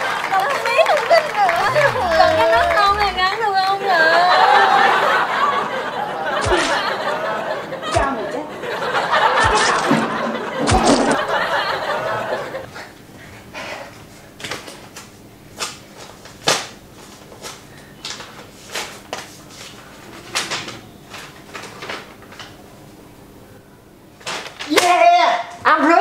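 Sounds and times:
woman laughing and shrieking: 1.6s - 3.3s.

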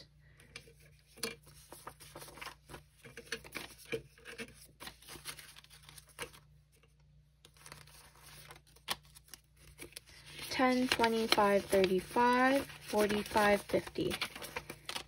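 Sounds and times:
banknotes crinkling: 0.8s - 15.0s.

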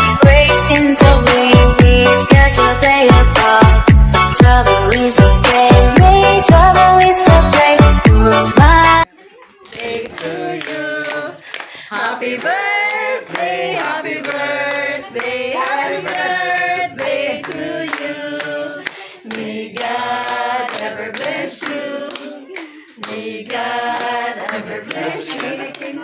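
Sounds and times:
hands clapping: 9.5s - 26.0s
group of people singing: 9.7s - 26.0s.

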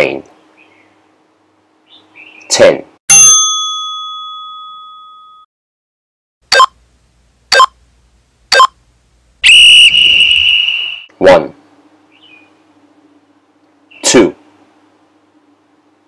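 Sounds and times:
chime ringing: 3.1s - 5.5s
short timer beeps: 6.5s - 6.8s, 7.5s - 7.8s, 8.5s - 8.8s
long whistle blast: 9.4s - 11.1s.

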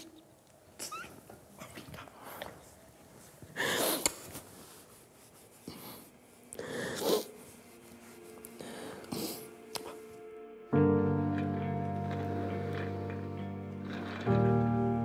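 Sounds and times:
person crying and sniffing: 5.6s - 7.6s.

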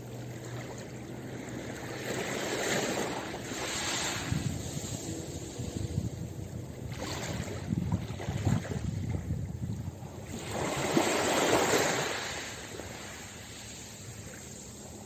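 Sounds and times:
sea waves on pebble beach: 1.1s - 5.9s, 10.2s - 15.0s.

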